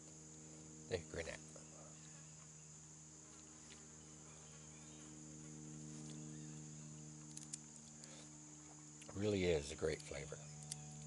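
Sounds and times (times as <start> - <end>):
insects chirring: 0.0 - 11.0
low insect buzz: 0.0 - 11.0
small clicks: 7.2 - 8.2, 9.9 - 11.0.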